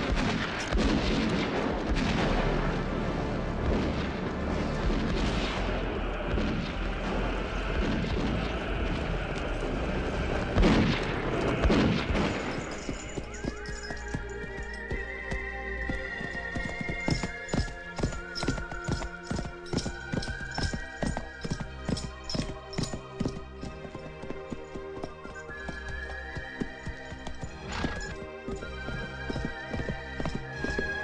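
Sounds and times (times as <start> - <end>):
booms and cracks: 0.0 - 2.8, 3.6 - 9.4, 10.5 - 12.8.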